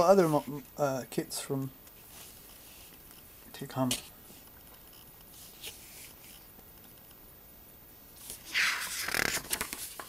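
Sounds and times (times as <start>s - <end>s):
paper rustling: 8.2s - 10.0s.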